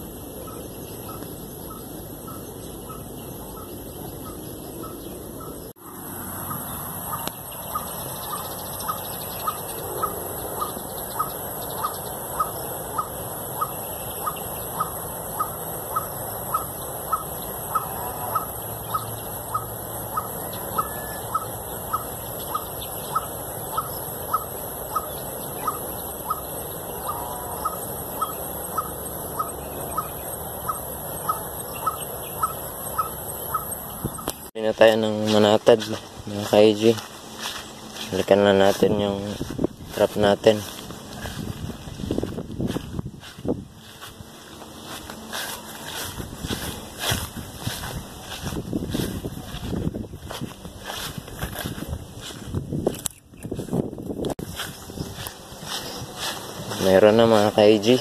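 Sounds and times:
bird call note: 6.5s - 34.3s
steady high hiss: 54.4s - 58.0s.

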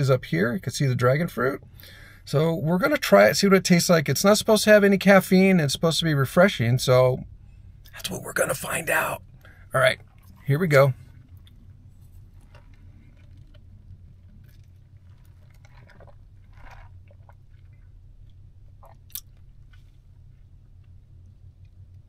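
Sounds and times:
low steady hum: 0.0s - 22.0s
sipping and swallowing: 11.2s - 20.0s
wet mouth clicks: 18.8s - 19.4s.

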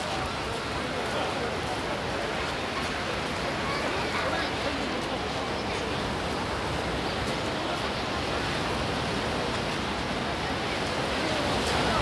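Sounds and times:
crowd murmur: 0.0s - 12.0s
surf breaking on beach: 6.2s - 12.0s.

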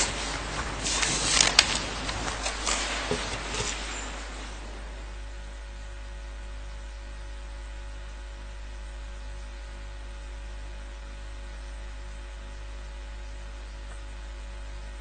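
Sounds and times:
electrical hum and hiss: 0.0s - 15.0s.

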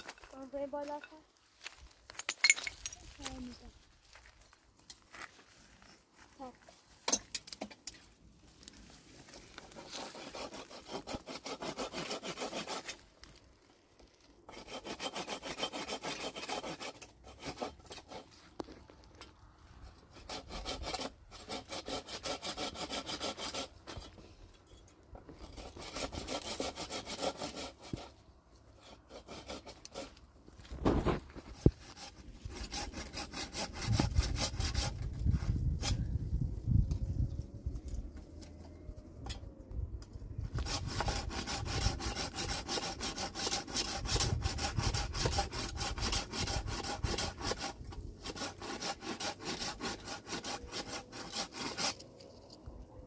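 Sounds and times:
hand saw cutting wood: 9.3s - 13.4s, 14.5s - 18.7s, 19.9s - 24.3s, 25.3s - 36.1s, 40.5s - 52.5s.

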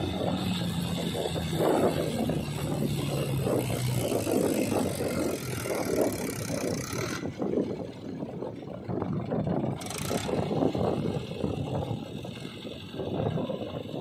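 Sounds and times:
tractor diesel engine chugging: 5.3s - 14.0s.

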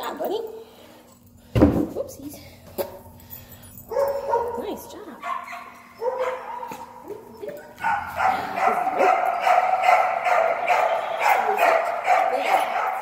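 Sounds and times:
dog yelping: 3.9s - 13.0s
dog barking rapidly: 4.0s - 6.8s, 7.8s - 13.0s.

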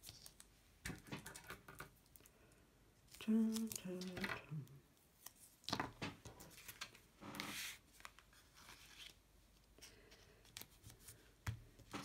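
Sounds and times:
tape and card rustles and clicks: 3.1s - 9.2s.

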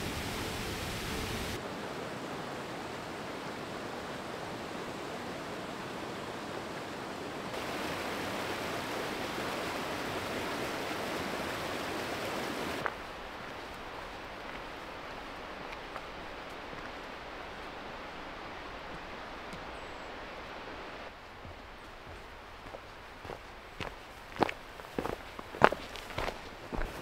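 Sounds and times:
river running over rapids: 0.0s - 27.0s
waterfall pouring onto rocks: 7.6s - 12.9s.

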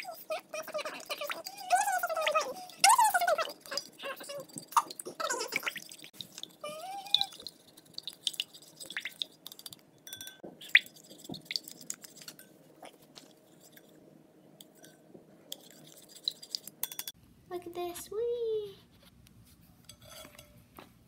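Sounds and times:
wet sloshing and squelching: 0.6s - 9.8s, 10.6s - 13.9s
spoon clicking against glass: 10.1s - 10.4s.

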